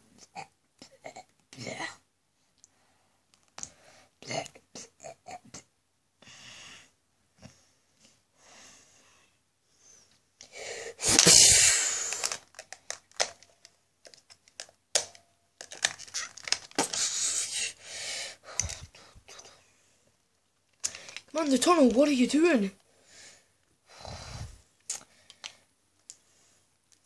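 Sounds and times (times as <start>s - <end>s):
breathy burst of noise: 9.8s - 12.5s, 16.8s - 19.7s, 23.0s - 25.2s
plastic toys clicking and rustling: 12.0s - 17.2s, 18.5s - 19.5s, 20.7s - 22.4s.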